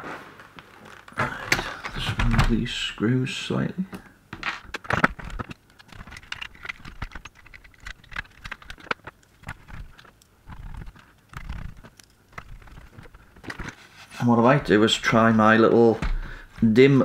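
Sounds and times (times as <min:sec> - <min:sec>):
low rubbing of parts: 0:05.4 - 0:15.9.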